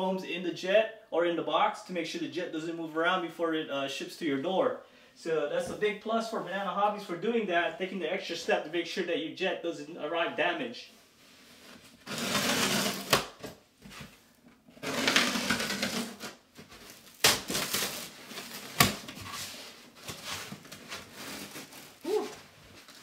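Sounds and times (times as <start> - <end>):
packing foam rustling: 11.3 - 14.2, 14.8 - 23.0.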